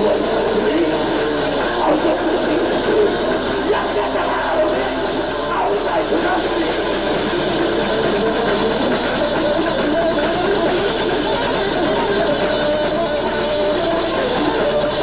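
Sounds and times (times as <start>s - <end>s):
drums: 0.0s - 15.0s
electric guitar: 0.0s - 15.0s.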